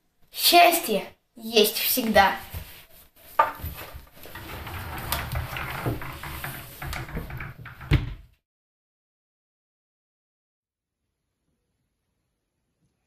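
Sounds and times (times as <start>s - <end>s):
rustling in a wardrobe: 1.9s - 8.3s
wardrobe door shutting: 3.4s - 8.3s.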